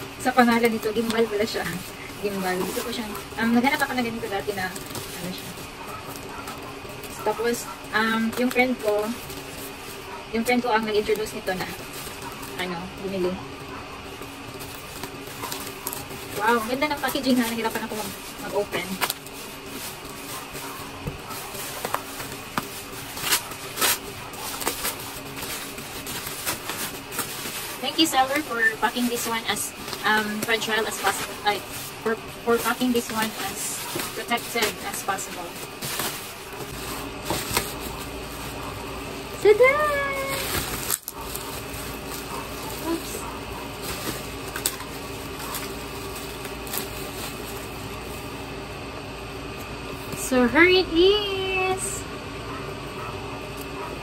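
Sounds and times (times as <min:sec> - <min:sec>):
plastic pouch crinkling: 0:00.0 - 0:48.6
bubble wrap crackles: 0:00.0 - 0:50.3
scissors cutting plastic: 0:13.8 - 0:38.8, 0:39.4 - 0:47.7.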